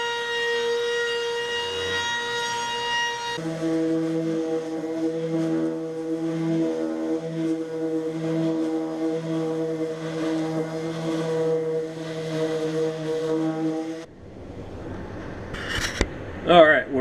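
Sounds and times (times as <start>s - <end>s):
orbital sander on wood: 0.0s - 14.1s.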